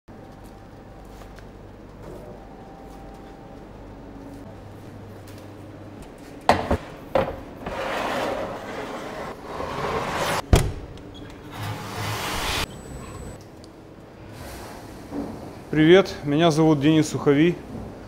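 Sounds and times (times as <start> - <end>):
metal peel scraping on rails: 7.6 - 10.4, 11.5 - 13.4.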